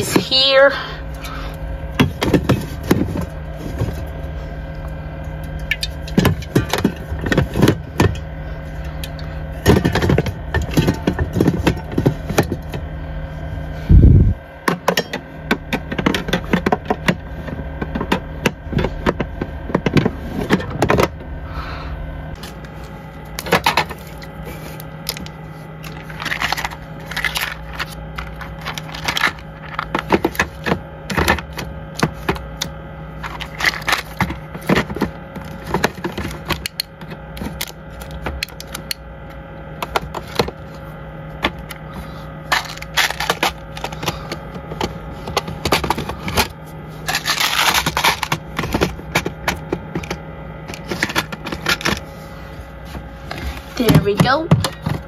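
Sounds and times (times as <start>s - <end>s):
steady low hum: 0.0s - 55.0s
plastic packaging crinkling: 24.0s - 30.1s, 33.2s - 34.2s, 47.1s - 48.3s.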